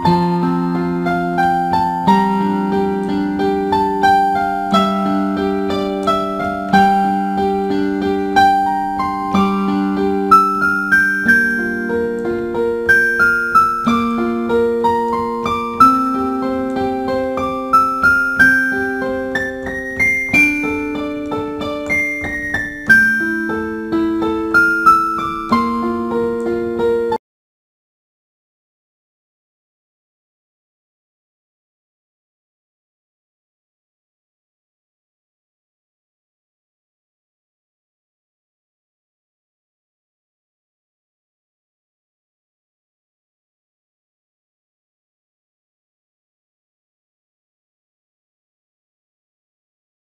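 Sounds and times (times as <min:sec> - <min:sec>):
keyboard music with chiming notes: 0:00.0 - 0:27.2.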